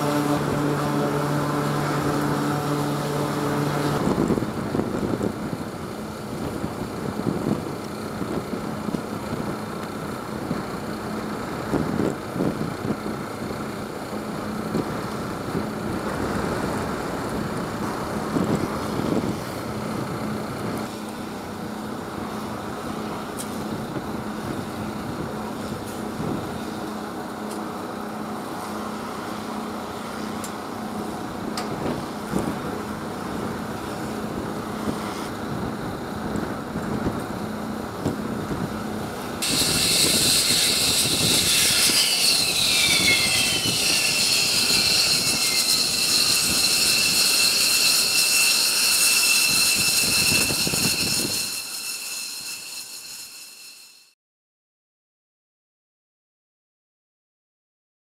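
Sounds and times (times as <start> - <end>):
jet engines whining: 0.0 - 6.8
steady low drone: 0.0 - 47.4.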